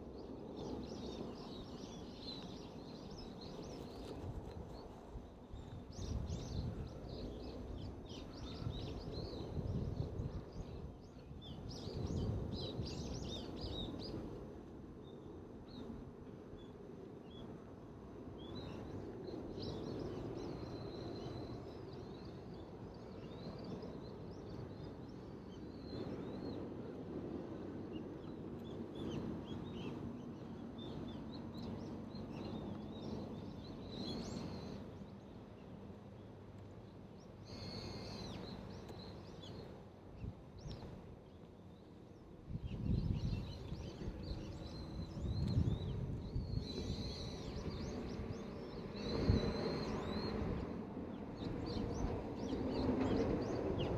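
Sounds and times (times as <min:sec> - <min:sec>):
wind gusts buffeting microphone: 0:00.1 - 0:16.2, 0:42.1 - 0:53.9.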